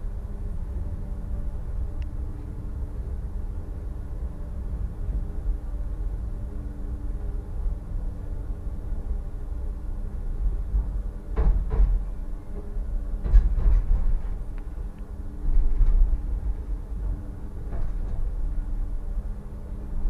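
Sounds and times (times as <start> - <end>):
faint motor hum: 0.0 - 20.0
tram rumbling on track: 0.0 - 20.0
sharp knocks and rattles: 11.4 - 14.5.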